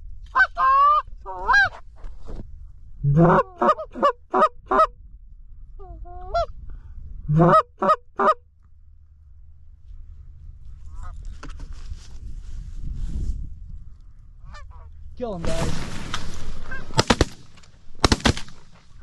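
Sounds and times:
goose call clucks: 0.3 - 1.8, 3.1 - 4.9, 7.3 - 8.4
distant geese honking: 7.3 - 8.4, 14.4 - 15.0.

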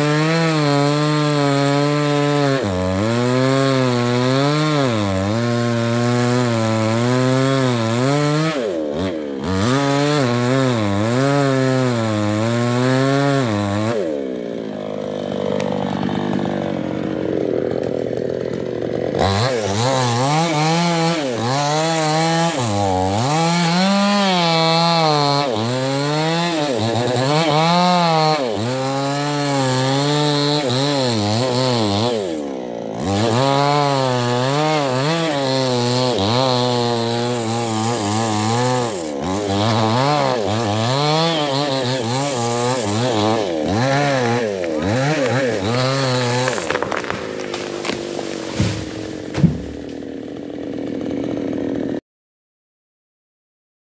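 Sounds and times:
chainsaw cutting wood: 0.0 - 52.0.

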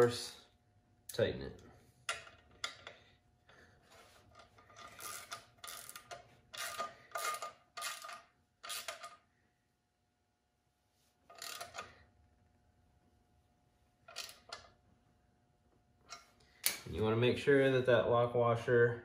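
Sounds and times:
socket ratchet clicking: 4.8 - 9.2.

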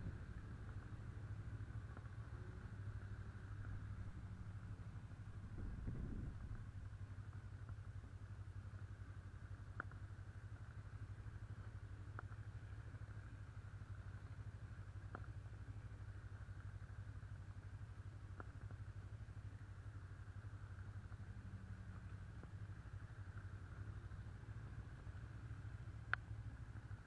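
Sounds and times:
motorcycle engine rumbling: 0.0 - 15.2
faint sharp clicks: 9.7 - 10.0, 25.9 - 27.0.

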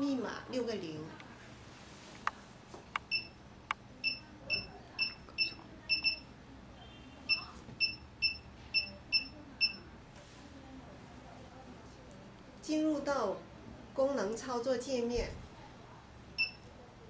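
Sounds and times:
short high keypad beeps: 4.0 - 6.2.

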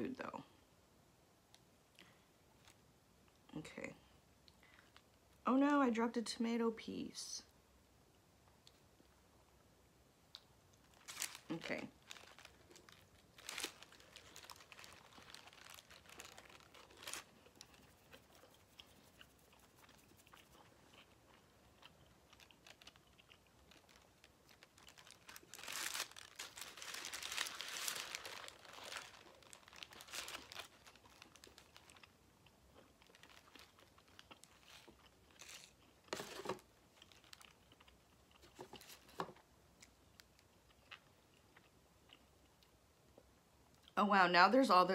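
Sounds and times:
soft chewing: 10.3 - 44.0
paper wrapper crinkling: 10.8 - 21.2, 22.2 - 32.2, 32.9 - 39.3
rustling: 10.8 - 21.2, 23.6 - 32.0, 33.0 - 37.5.

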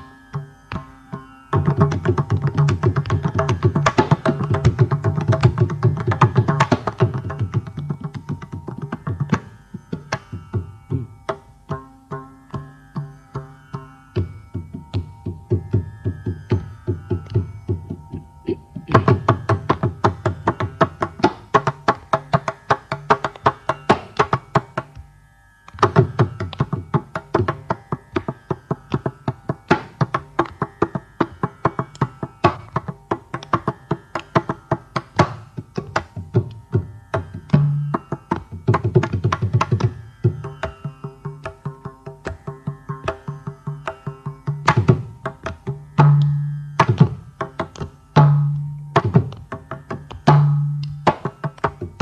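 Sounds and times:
mridangam drumming fast: 0.0 - 25.0, 25.7 - 52.0.

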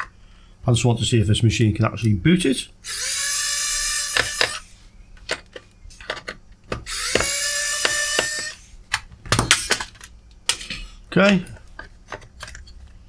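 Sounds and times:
electric screwdriver whine: 2.8 - 4.7, 6.9 - 8.7.

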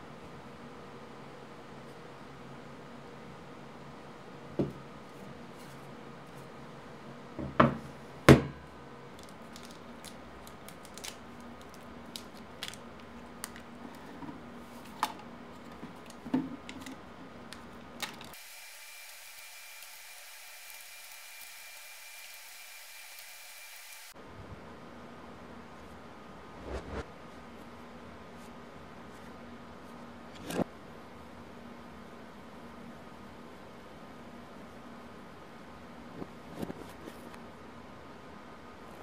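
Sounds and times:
steady hiss with high tone: 18.4 - 24.2.

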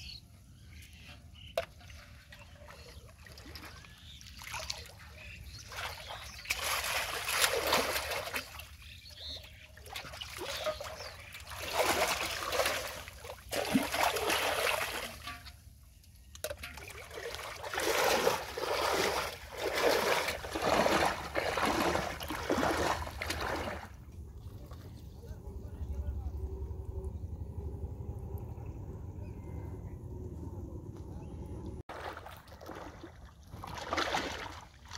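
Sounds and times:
shallow water splashing: 1.4 - 25.1, 31.8 - 34.9
metal pot pushed through water: 10.0 - 15.6, 16.4 - 23.9
hand plunging into water: 16.5 - 23.9, 31.9 - 34.7.

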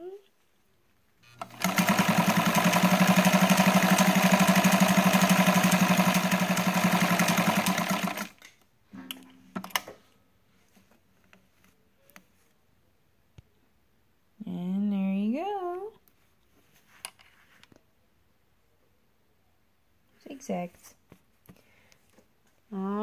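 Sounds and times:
sewing machine running: 1.3 - 8.4
sewing machine clicks: 1.3 - 8.5.

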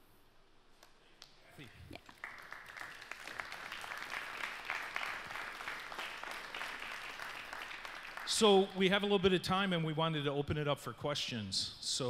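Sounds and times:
audience applauding: 2.0 - 8.9.

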